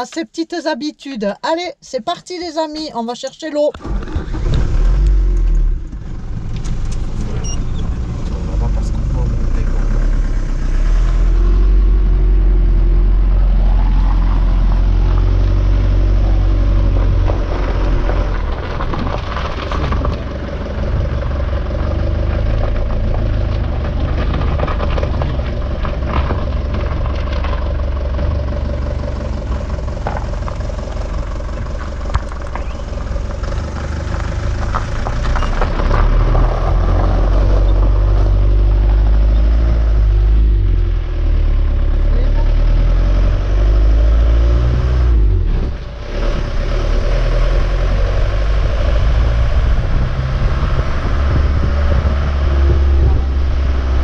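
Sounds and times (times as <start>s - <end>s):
diesel engine rumble: 0.0s - 54.0s
tyres on gravel: 13.3s - 39.8s
cab rattles and knocks: 16.9s - 21.2s, 22.4s - 36.1s.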